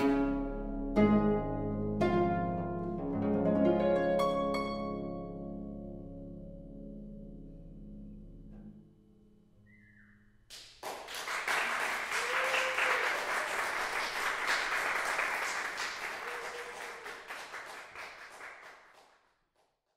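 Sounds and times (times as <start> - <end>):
audience applause: 10.8 - 19.2.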